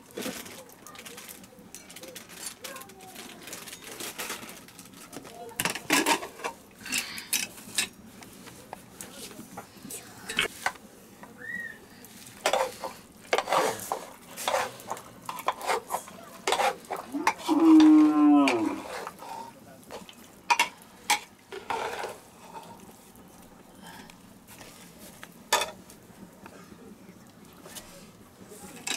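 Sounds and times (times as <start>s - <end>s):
metal ladle scraping a pot: 12.4s - 19.6s, 21.5s - 22.8s
cow mooing: 17.4s - 18.8s.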